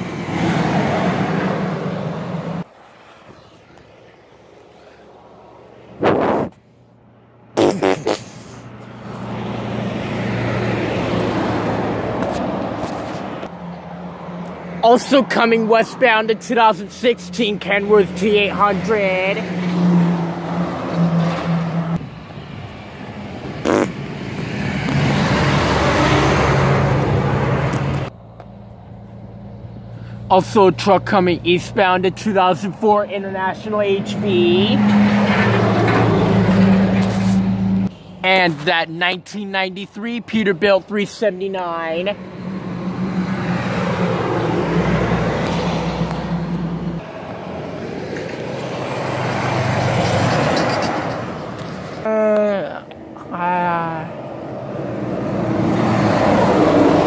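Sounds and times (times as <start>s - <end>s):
vehicle passing: 0.0s - 52.0s, 53.0s - 57.0s
tyre and road noise: 0.0s - 57.0s
truck driving past: 16.8s - 32.2s, 33.4s - 38.4s, 42.0s - 52.0s.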